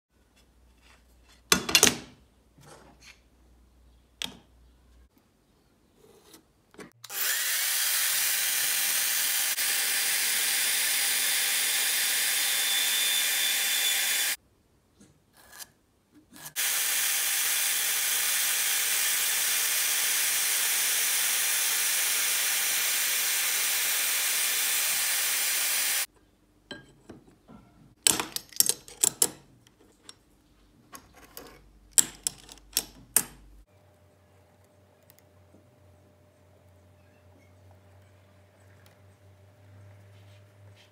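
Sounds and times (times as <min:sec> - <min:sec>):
scroll saw cutting metal: 0:07.0 - 0:14.4, 0:16.4 - 0:26.1.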